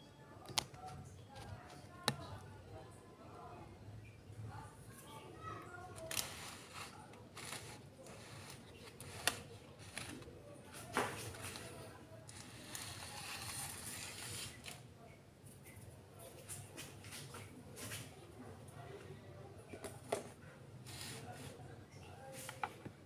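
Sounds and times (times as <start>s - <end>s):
plastic pot scraping on table: 6.0s - 10.3s, 11.0s - 14.8s.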